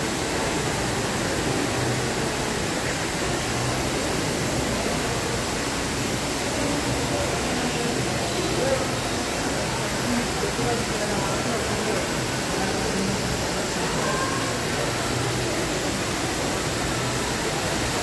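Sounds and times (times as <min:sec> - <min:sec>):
fountain water splashing: 0:00.0 - 0:18.0.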